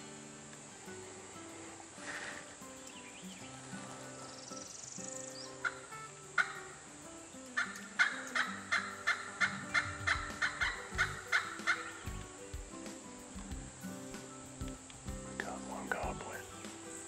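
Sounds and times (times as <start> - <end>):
turkey yelping: 7.6 - 12.0.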